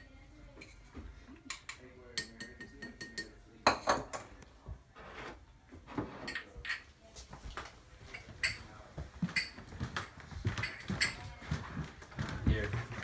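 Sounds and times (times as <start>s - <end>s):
glasses clinking: 1.5s - 4.2s, 8.1s - 8.6s, 9.3s - 9.6s
glasses knocking on counter: 2.2s - 4.2s
footsteps: 7.0s - 13.0s.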